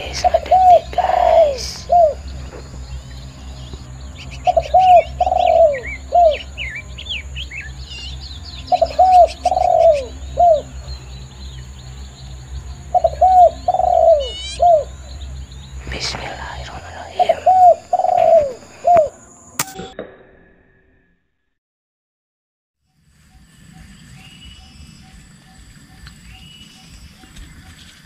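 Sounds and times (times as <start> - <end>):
dove cooing: 0.0 - 2.8, 4.4 - 6.6, 8.7 - 10.7, 12.9 - 14.9, 15.8 - 19.4
bird trill: 0.0 - 19.6
small birds chirping: 0.0 - 19.6.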